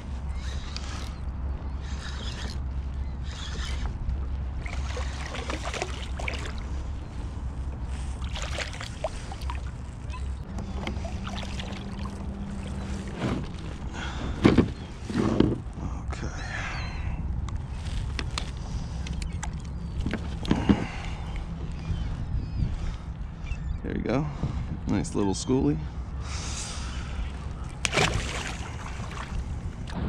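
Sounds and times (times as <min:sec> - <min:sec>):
fish splashing: 0:04.6 - 0:06.7, 0:08.2 - 0:09.8, 0:11.0 - 0:13.0, 0:27.8 - 0:29.4.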